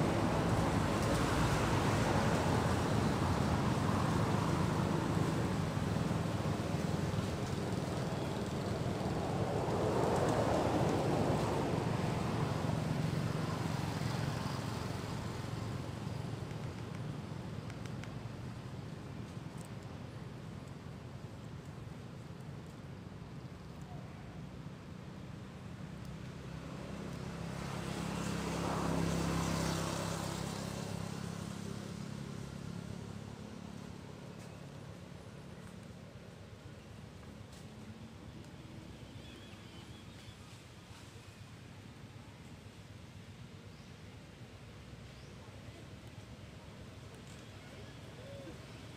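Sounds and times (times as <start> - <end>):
vehicle engine passing by: 26.5 - 34.0.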